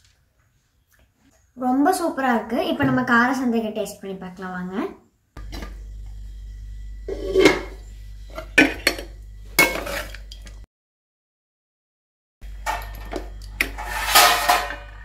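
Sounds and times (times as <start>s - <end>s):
steady low hum: 5.4s - 10.7s, 12.4s - 15.0s
ladle scraping a metal pan: 7.1s - 7.8s, 9.6s - 10.2s, 13.6s - 15.0s.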